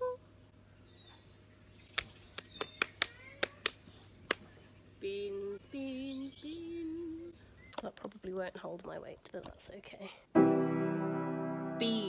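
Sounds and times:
faint bird chirps: 0.8 - 7.8.

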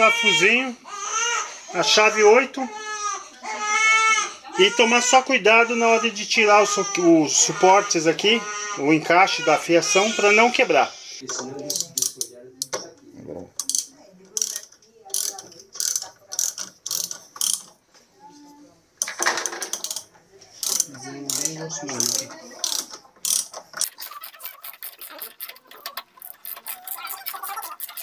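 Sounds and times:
ratchet wrench clicking: 13.6 - 17.8, 19.7 - 27.1.

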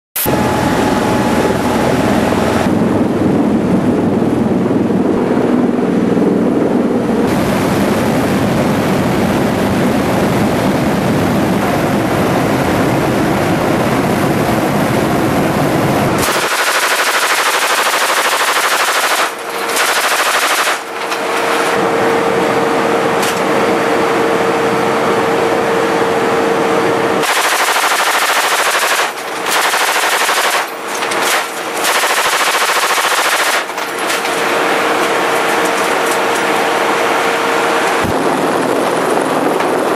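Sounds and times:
aircraft engine and rotor noise: 0.2 - 39.9
steady hum: 0.2 - 39.9
machine gun firing bursts: 16.2 - 21.8, 27.2 - 36.8.

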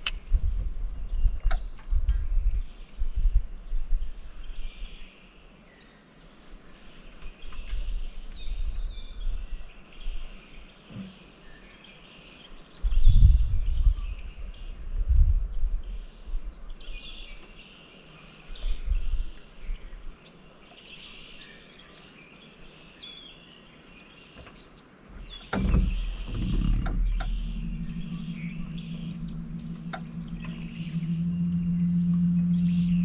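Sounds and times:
low rumble: 25.1 - 33.0
steady low hum: 25.1 - 33.0.

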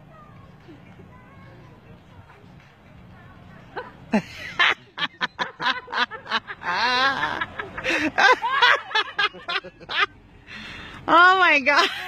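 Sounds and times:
person laughing: 3.8 - 10.1.

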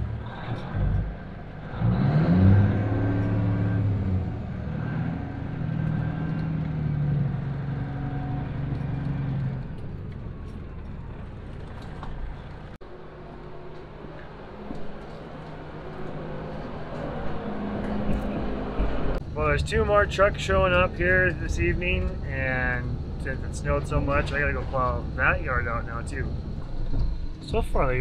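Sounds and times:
diesel truck engine revving: 0.0 - 28.0.

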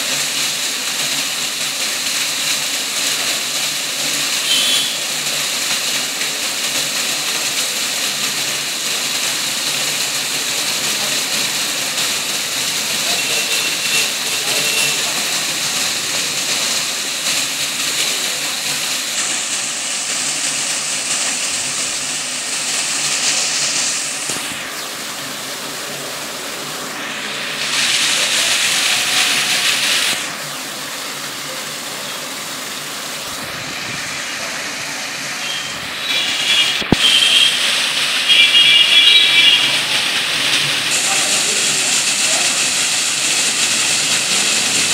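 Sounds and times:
water splashing into fountain pool: 0.0 - 44.9.

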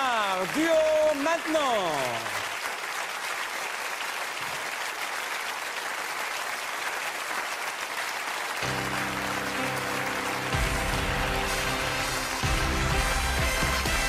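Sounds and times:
audience applauding: 0.0 - 14.0
music with held notes: 8.6 - 14.0.

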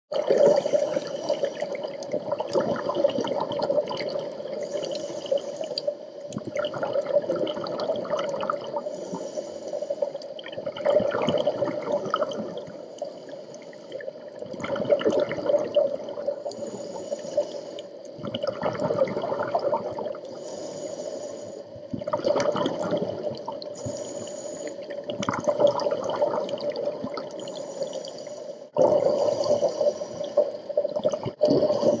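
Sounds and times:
exhaled bubbles rushing: 0.1 - 5.0, 6.3 - 8.8, 10.4 - 12.8, 14.0 - 16.8, 18.2 - 20.3, 21.9 - 23.9, 24.8 - 27.7, 28.8 - 32.0
regulator inhale hiss: 0.4 - 1.8, 4.6 - 6.3, 8.8 - 10.4, 12.7 - 14.2, 16.3 - 18.2, 20.3 - 21.9, 23.8 - 25.0, 27.4 - 30.8.

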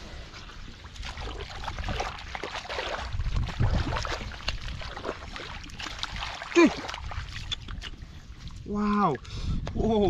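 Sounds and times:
hands sloshing through muddy water: 0.0 - 9.2
small splashes: 0.9 - 8.1.

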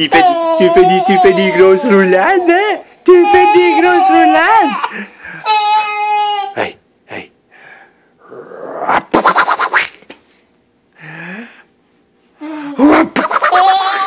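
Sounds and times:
infant squealing: 0.0 - 2.6, 3.2 - 4.9, 12.9 - 14.0
infant laughing: 12.8 - 14.0.

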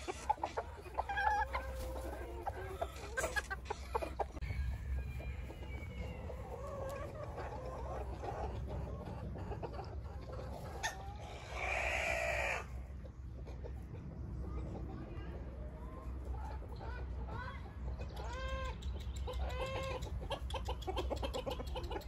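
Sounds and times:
chickens clucking: 0.0 - 22.0
harsh chicken call: 10.8 - 12.8.

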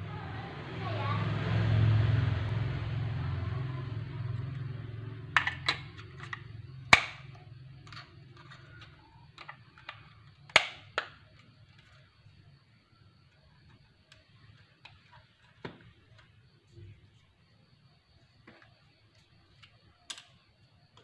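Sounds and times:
low hum: 0.0 - 9.2.

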